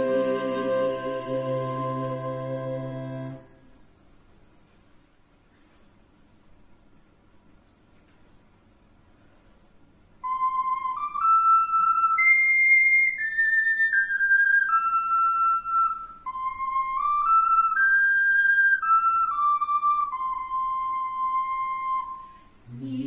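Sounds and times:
flute playing slow melody: 0:00.0 - 0:03.7, 0:10.2 - 0:22.6.

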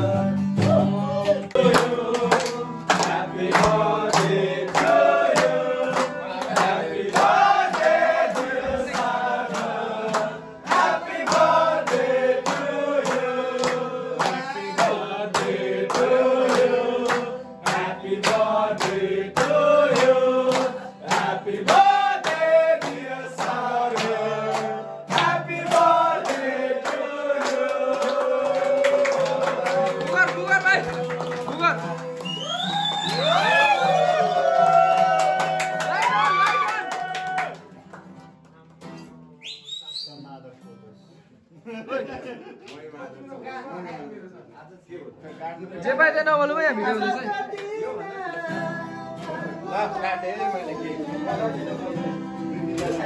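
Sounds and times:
men singing together: 0:00.0 - 0:32.0, 0:47.4 - 0:53.0
clapping in time: 0:01.5 - 0:09.1, 0:17.0 - 0:33.6, 0:34.4 - 0:39.0.

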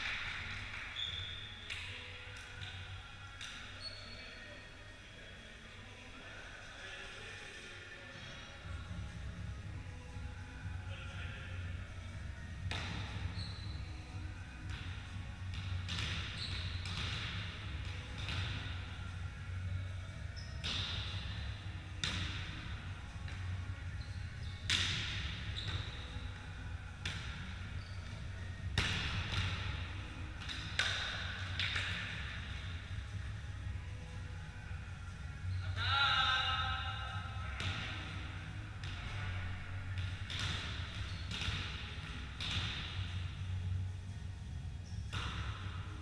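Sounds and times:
shoes squeaking on court: 0:00.9 - 0:02.0, 0:03.4 - 0:04.6, 0:12.6 - 0:14.8, 0:15.6 - 0:18.8, 0:20.2 - 0:21.4, 0:23.9 - 0:26.5, 0:27.1 - 0:32.4, 0:40.3 - 0:43.0
hands slapping volleyball: 0:01.7 - 0:02.8, 0:30.3 - 0:32.2.

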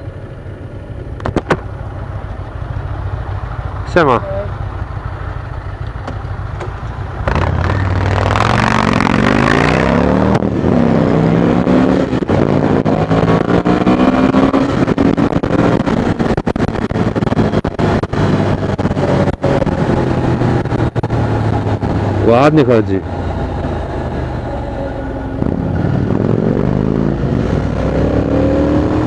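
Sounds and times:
motorcycle engines accelerating: 0:03.0 - 0:29.0
wind rush on microphone: 0:12.0 - 0:24.4, 0:25.2 - 0:29.0.

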